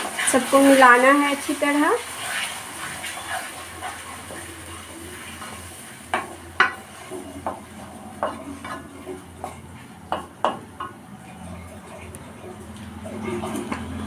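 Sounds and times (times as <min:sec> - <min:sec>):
wooden spatula scraping pan: 0:00.0 - 0:10.3
spatula knocking against pan: 0:06.1 - 0:06.8, 0:08.2 - 0:11.0.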